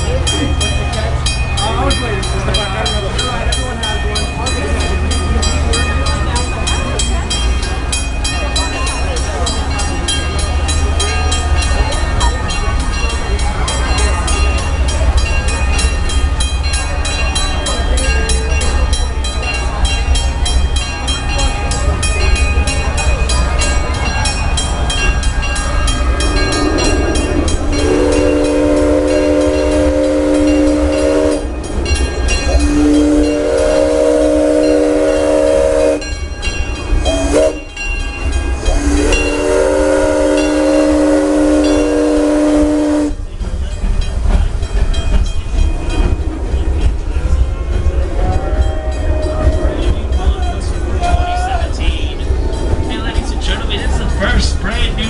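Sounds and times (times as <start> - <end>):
crossing bell ringing: 0.0 - 55.0
low rumble of moving train: 0.0 - 55.0
steam locomotive whistle: 26.2 - 31.7, 32.4 - 36.2, 37.0 - 37.8, 38.6 - 43.2.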